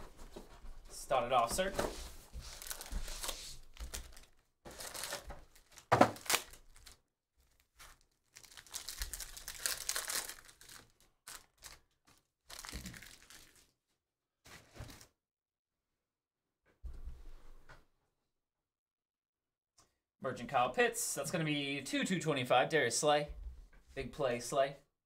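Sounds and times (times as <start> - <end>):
foil wrapper crinkling and tearing: 2.4 - 13.8.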